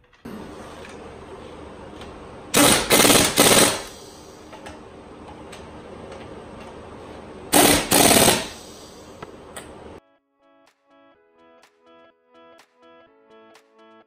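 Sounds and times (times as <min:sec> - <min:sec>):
pneumatic impact wrench rattling: 0:02.5 - 0:04.8, 0:07.5 - 0:09.2.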